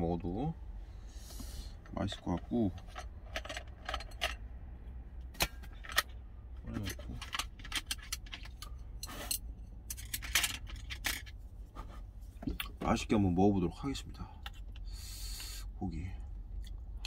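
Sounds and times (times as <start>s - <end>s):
utensils clinking and rattling: 2.1s - 4.4s, 6.7s - 11.4s.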